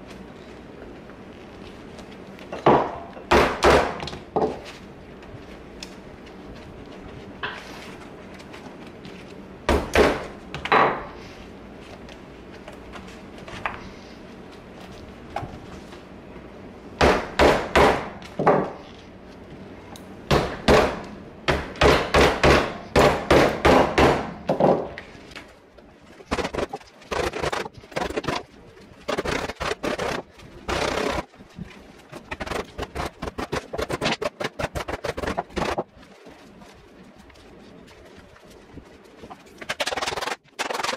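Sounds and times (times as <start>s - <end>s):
wooden mallet pounding leather glove: 2.6s - 4.6s, 9.7s - 11.0s, 17.0s - 18.7s, 20.3s - 24.9s.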